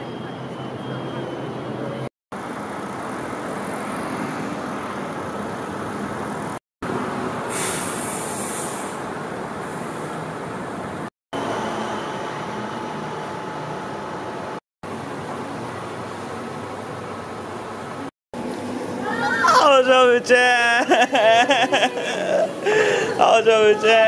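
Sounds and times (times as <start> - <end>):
passing cars: 0.0 - 14.2
burst of high hiss: 7.5 - 9.0.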